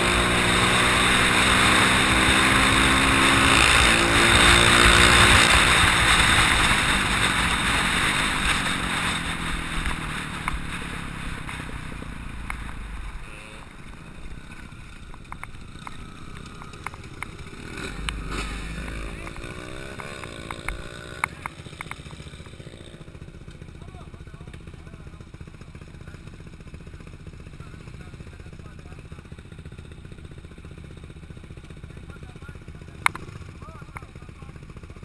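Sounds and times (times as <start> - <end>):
wind and road rush: 0.0 - 23.1
dirt bike engine running: 0.0 - 35.0.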